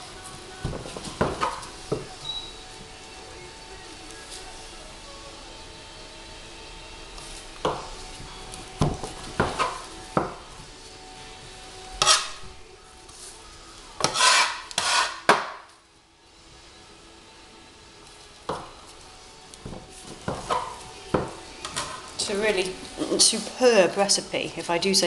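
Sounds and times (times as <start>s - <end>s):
soap log scraping along box: 14.0s - 15.3s.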